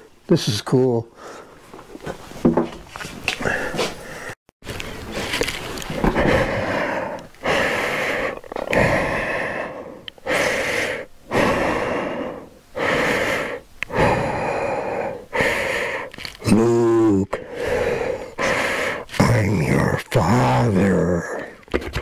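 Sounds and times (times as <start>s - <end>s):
man breathing heavily: 1.1s - 1.6s, 3.3s - 4.4s, 5.1s - 19.9s, 20.5s - 21.6s
man groaning: 16.4s - 17.4s, 19.7s - 21.4s.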